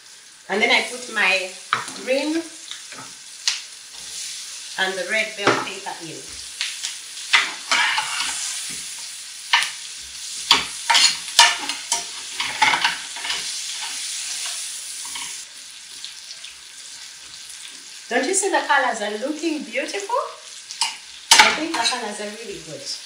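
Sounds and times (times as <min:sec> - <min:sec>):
vegetables sizzling in a pan: 0:00.0 - 0:23.0
spatula scraping a pan: 0:07.3 - 0:15.4.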